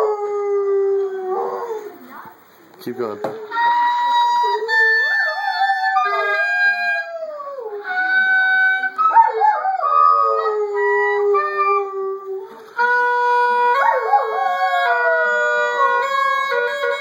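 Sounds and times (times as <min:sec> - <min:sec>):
dog howling: 0:00.0 - 0:02.0, 0:03.5 - 0:17.0
oboe playing slow notes: 0:03.5 - 0:17.0.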